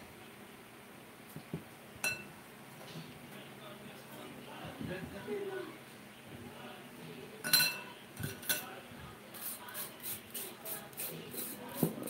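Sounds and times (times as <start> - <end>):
metal clinking on glass: 2.0 - 2.3, 7.4 - 7.8
spoon scraping potato: 9.3 - 12.0.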